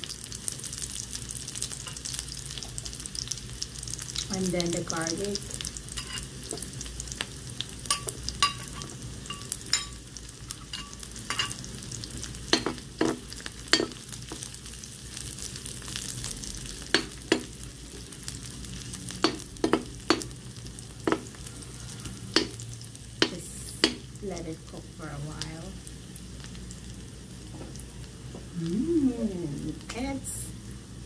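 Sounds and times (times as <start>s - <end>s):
onion sizzling in hot oil: 0.0s - 31.0s
metal ladle scraping pan: 6.0s - 6.3s.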